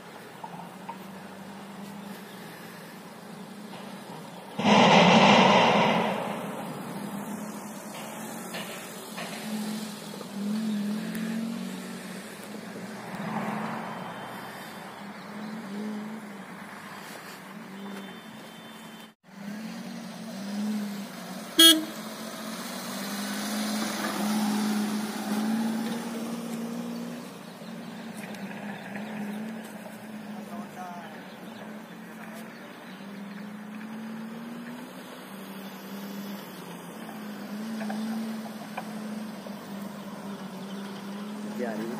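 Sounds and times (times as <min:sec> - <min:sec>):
sharp click: 0:04.6 - 0:07.4.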